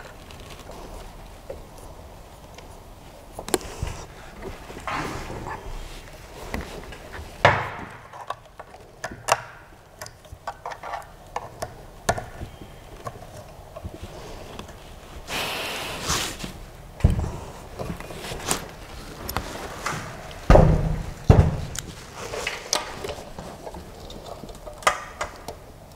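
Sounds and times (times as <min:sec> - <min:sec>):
rustling scrape: 0:00.0 - 0:07.4, 0:13.7 - 0:24.8
heavy thump: 0:20.5 - 0:21.7.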